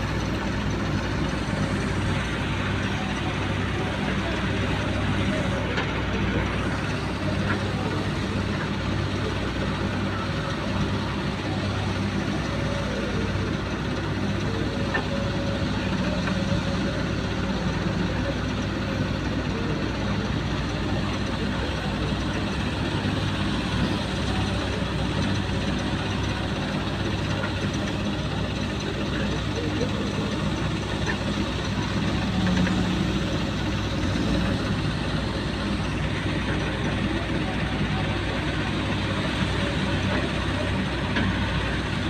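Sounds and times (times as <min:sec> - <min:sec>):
excavator diesel engine working: 0:00.0 - 0:42.0
tractor idling: 0:00.0 - 0:42.0.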